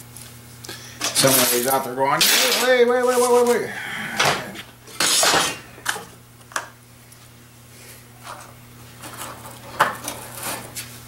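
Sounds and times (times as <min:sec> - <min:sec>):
steady low hum: 0:00.0 - 0:11.0
metal parts clinking on workbench: 0:01.0 - 0:02.8.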